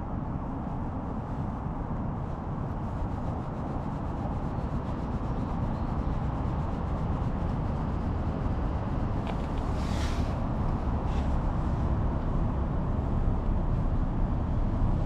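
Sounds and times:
hand rubbing cat fur: 9.0 - 12.2.

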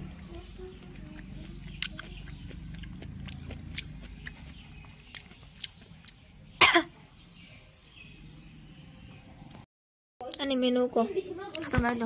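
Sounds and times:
person coughing: 6.6 - 7.0.

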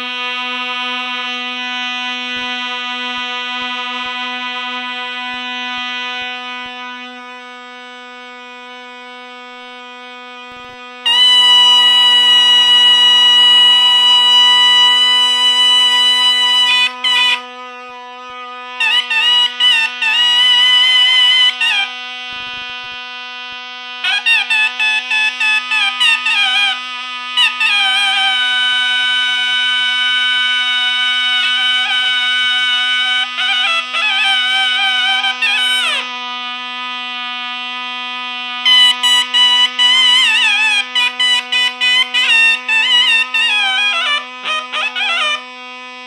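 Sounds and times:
high reed pipe notes: 0.0 - 46.0
low reed pipe drone: 0.0 - 46.0
piercing ornamented reed melody: 10.8 - 22.1, 38.7 - 46.0.

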